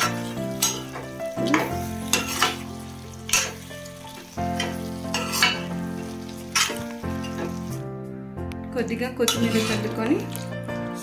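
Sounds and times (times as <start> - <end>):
gravy sizzling: 0.0 - 8.1
metal spoon scraping pot: 1.5 - 2.6, 4.6 - 5.7, 9.3 - 10.1.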